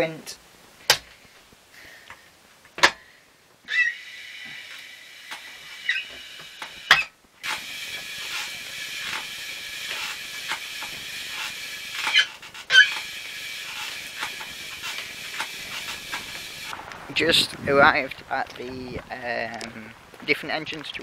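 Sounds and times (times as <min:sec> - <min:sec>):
exercise bike flywheel whirring: 0:03.7 - 0:16.8
short squeaks: 0:05.4 - 0:07.6, 0:09.9 - 0:16.7.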